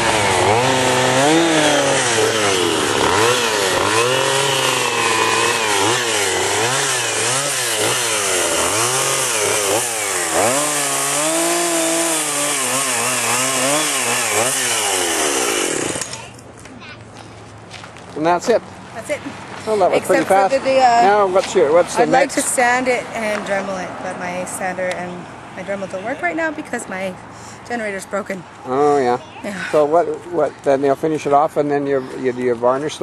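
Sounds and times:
chainsaw cutting wood: 0.0s - 16.4s.

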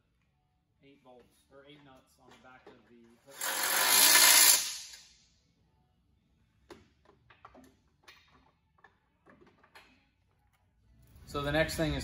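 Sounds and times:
impact wrench running: 3.3s - 5.1s.

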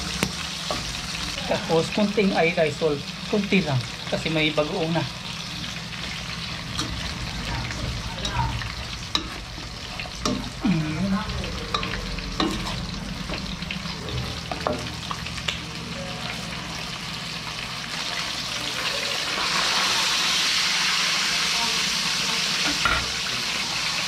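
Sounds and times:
vegetables sizzling in pan: 0.0s - 24.0s
utensil stirring and clinking pan: 3.5s - 15.2s.

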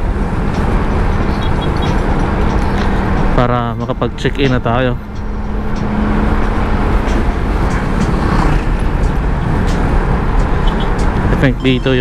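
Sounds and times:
motor scooter riding: 5.1s - 12.0s.

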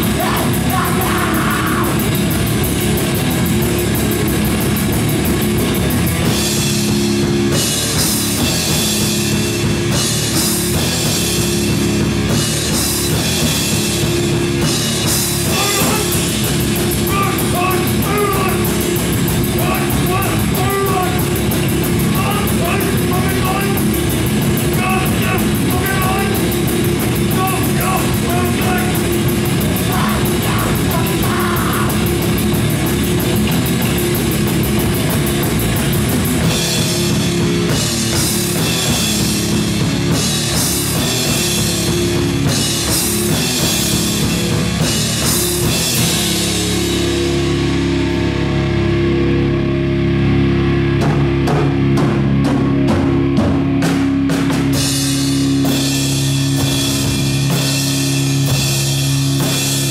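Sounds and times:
vocals: 0.0s - 2.2s, 15.4s - 32.4s
rapid drumming: 0.0s - 47.7s, 50.9s - 59.9s
bass guitar: 0.0s - 59.9s
electric guitar: 0.0s - 59.9s.

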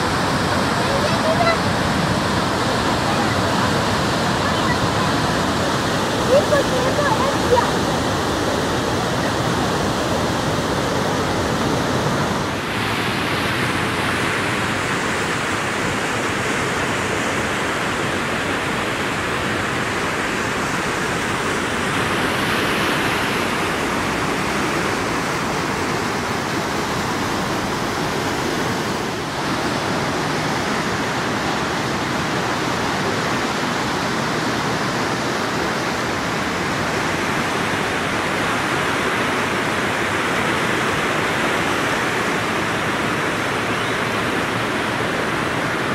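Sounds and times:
floodwater rushing over spillway: 0.0s - 45.9s.

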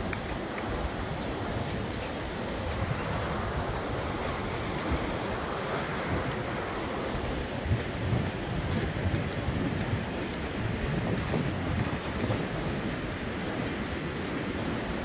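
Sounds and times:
distant river running: 0.0s - 15.0s
wind buffeting microphone: 0.0s - 15.0s.

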